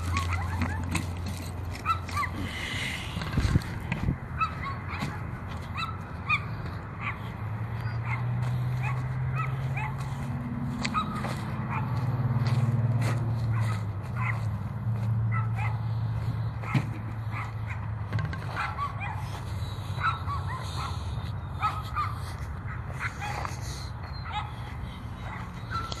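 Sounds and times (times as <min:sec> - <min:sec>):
dog barking and yipping: 0:00.0 - 0:02.5, 0:04.4 - 0:12.2, 0:13.4 - 0:14.6, 0:15.2 - 0:26.0.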